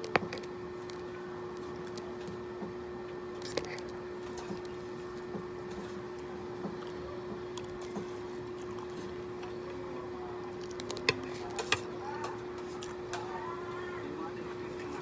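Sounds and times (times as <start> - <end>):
steady hum: 0.0 - 15.0
faint chewing: 3.1 - 13.8.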